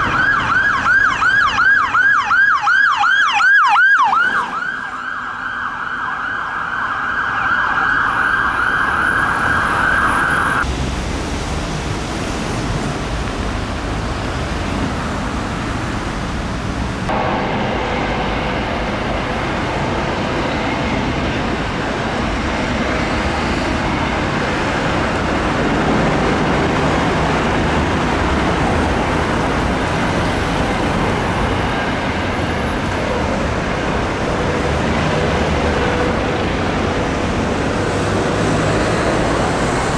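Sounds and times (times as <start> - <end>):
ambulance siren wailing: 0.0 - 10.7
low rumbling noise: 10.4 - 39.9
helicopter flying past: 17.1 - 39.9.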